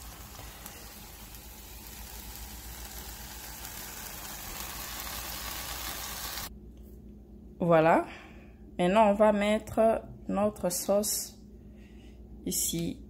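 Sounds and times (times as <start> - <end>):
sauce sizzling in a frying pan: 0.0 - 6.5.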